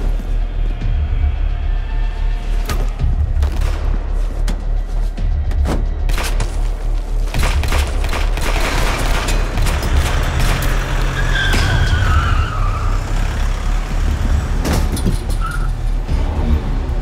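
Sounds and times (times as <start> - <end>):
tyres squealing: 10.2 - 14.0.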